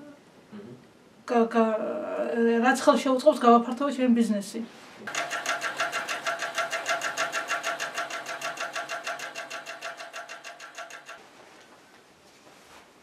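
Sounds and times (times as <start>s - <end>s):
sewing machine stitching fabric: 5.1s - 11.2s.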